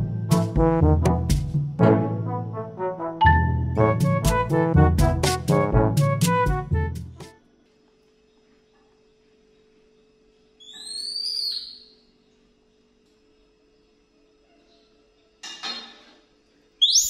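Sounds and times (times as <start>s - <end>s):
background music: 0.0s - 7.4s
faint steady hum: 7.4s - 16.8s.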